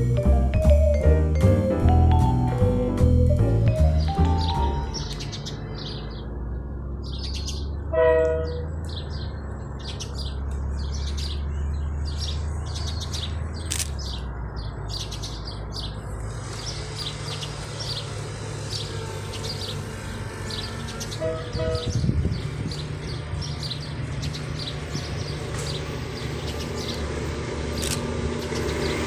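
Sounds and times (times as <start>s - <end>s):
birds chirping: 3.2s - 29.0s
diesel locomotive horn blast: 7.9s - 8.8s, 19.9s - 22.2s.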